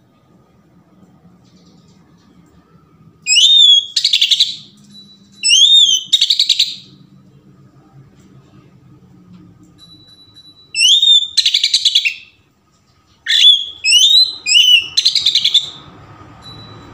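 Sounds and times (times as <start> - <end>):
bird singing whistles and rattles: 3.3 - 7.0, 10.1 - 12.4, 13.2 - 15.9.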